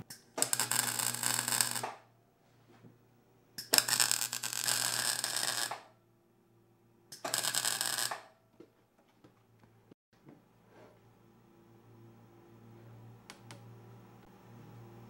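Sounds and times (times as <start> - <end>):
welder low hum: 0.0 - 2.0
welding arc crackling: 0.1 - 2.0, 3.6 - 5.9, 7.2 - 8.3.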